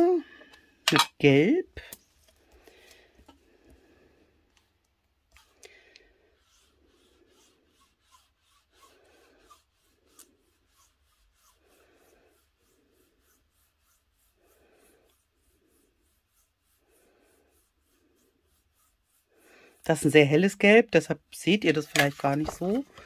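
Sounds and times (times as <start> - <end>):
ink pad rubbing on cardstock: 6.2 - 20.8.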